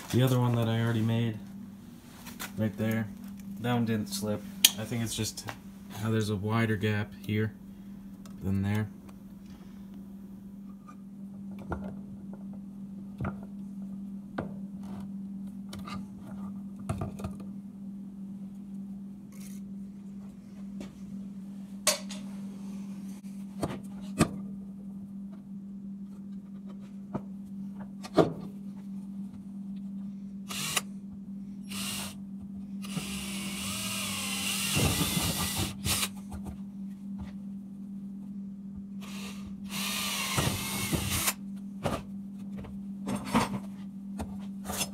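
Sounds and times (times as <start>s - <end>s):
steady low hum: 0.0s - 44.9s
cordless drill boring into pipe: 30.5s - 30.8s, 31.7s - 32.2s, 32.8s - 36.1s, 39.0s - 41.4s.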